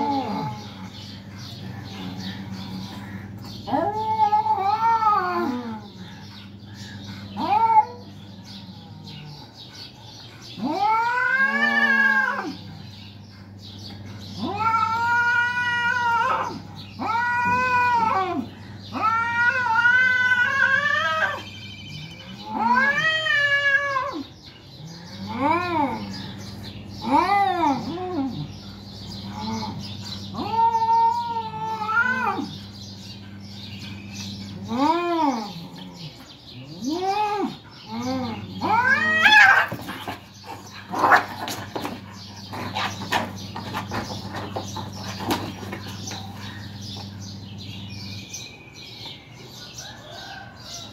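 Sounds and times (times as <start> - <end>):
cats yowling: 0.0 - 6.6, 7.3 - 9.6, 10.5 - 12.8, 14.2 - 48.1.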